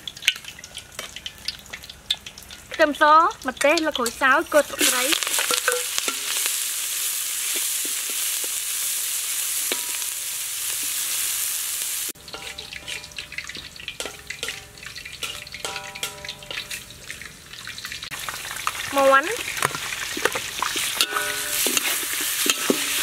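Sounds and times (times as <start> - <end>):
food sizzling in hot oil: 0.0 - 23.0
metal ladle stirring in wok: 3.6 - 11.2, 12.2 - 18.1, 19.5 - 23.0.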